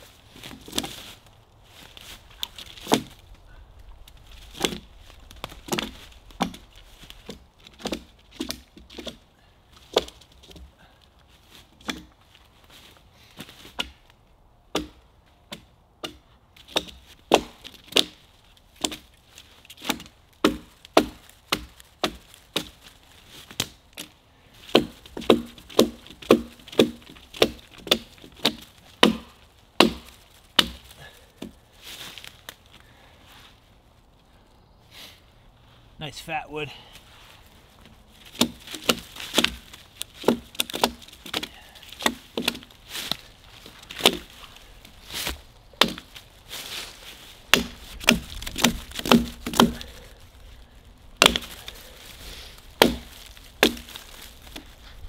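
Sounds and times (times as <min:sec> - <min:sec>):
blade chopping wood: 0:02.4 - 0:03.2, 0:04.5 - 0:06.6, 0:07.2 - 0:09.2, 0:14.7 - 0:18.2, 0:18.8 - 0:19.0, 0:19.7 - 0:22.8, 0:23.5 - 0:31.6, 0:38.3 - 0:43.3, 0:43.9 - 0:46.2, 0:47.5 - 0:50.2, 0:51.2 - 0:51.8, 0:52.8 - 0:54.7.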